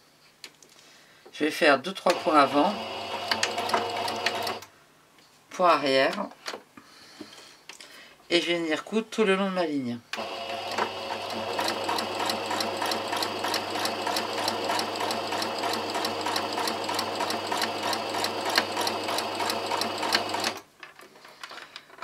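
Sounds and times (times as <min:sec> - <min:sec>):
sewing machine stitching: 0:02.1 - 0:04.7, 0:10.2 - 0:20.6.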